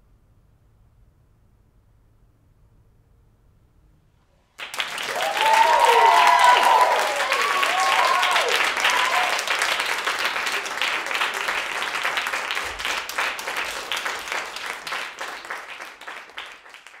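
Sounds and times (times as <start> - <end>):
audience applauding: 4.6 - 17.0.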